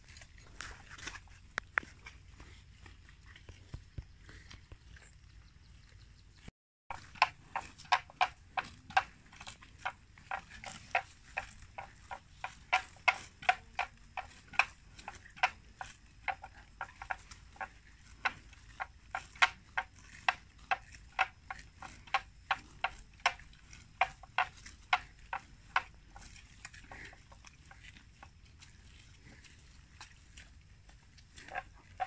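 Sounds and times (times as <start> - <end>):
buffalo tearing grass: 6.9 - 30.5.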